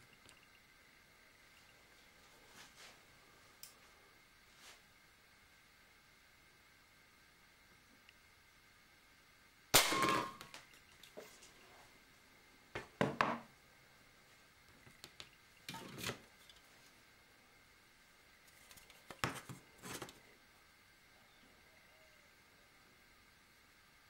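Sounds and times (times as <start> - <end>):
air pistol shot: 9.8 - 10.5
pellet hitting can with ring: 9.8 - 10.7.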